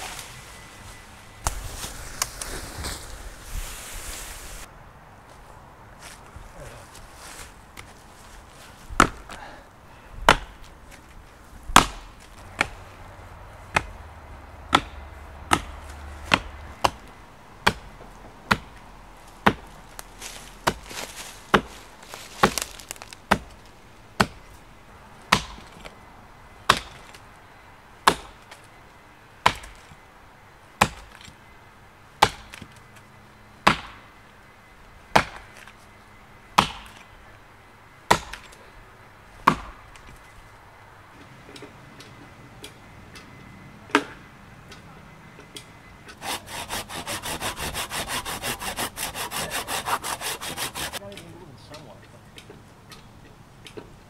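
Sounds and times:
axe chopping into wood: 9.0s - 9.4s, 10.3s - 10.6s, 11.7s - 12.8s, 13.7s - 14.0s, 14.7s - 17.0s, 18.5s - 18.8s, 19.4s - 19.7s, 20.3s - 23.5s, 25.3s - 25.8s, 33.6s - 34.0s, 36.6s - 37.0s, 38.1s - 38.6s, 39.4s - 39.8s.

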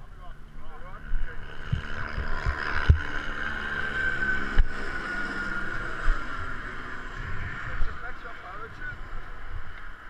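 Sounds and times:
wind buffeting microphone: 1.0s - 3.4s, 5.7s - 10.0s.

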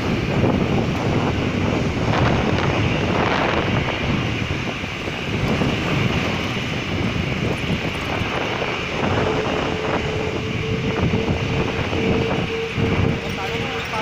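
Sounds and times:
jet engines rumbling: 0.0s - 14.0s
steady tone: 8.1s - 14.0s.

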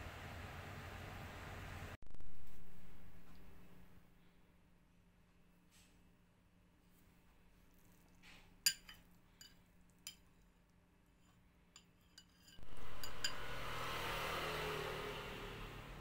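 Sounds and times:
metal spoon clinking ceramic bowl: 8.6s - 10.3s, 11.7s - 13.5s.

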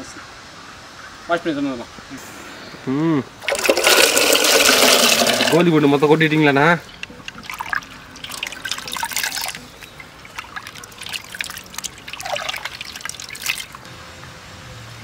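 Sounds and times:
grapes washed in water in a pot: 3.4s - 13.8s.

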